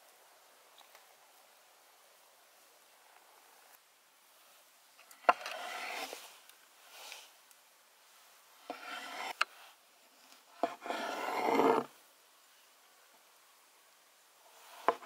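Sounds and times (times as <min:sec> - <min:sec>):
knife scrape: 0:05.3 - 0:06.2, 0:08.7 - 0:09.4, 0:10.6 - 0:11.9, 0:14.6 - 0:15.0.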